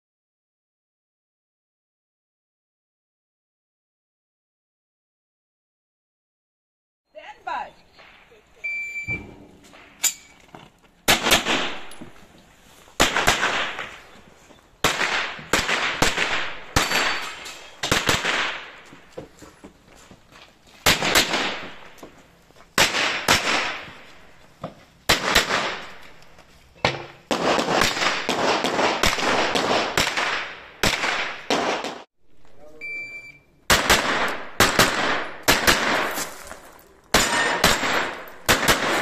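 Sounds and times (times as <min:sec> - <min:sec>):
gunshots with ringing echo: 0:11.1 - 0:12.2, 0:13.0 - 0:14.1, 0:14.8 - 0:18.8, 0:20.9 - 0:22.0, 0:25.1 - 0:26.0, 0:27.2 - 0:32.1, 0:33.7 - 0:36.4, 0:37.1 - 0:39.0.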